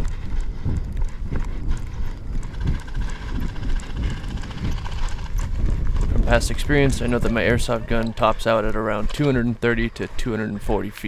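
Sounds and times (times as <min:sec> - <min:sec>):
fast light ticking rattle: 0:00.0 - 0:09.4
running footsteps on grass and gravel: 0:00.0 - 0:11.0.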